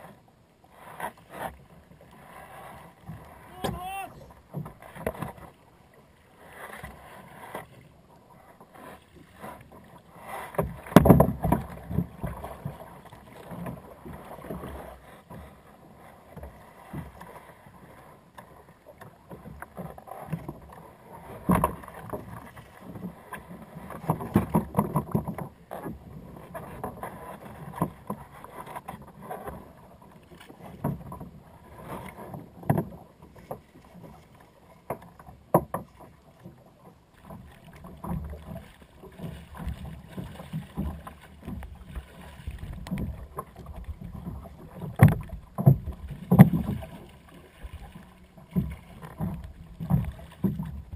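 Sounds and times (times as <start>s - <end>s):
knocks against plastic kayak: 34.9s - 35.9s, 44.9s - 46.8s.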